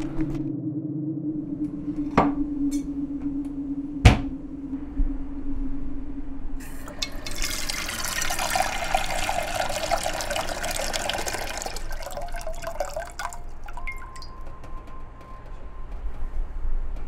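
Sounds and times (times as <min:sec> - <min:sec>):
faucet running into saucepan: 0:06.6 - 0:14.3
water dripping from spout: 0:06.6 - 0:14.6.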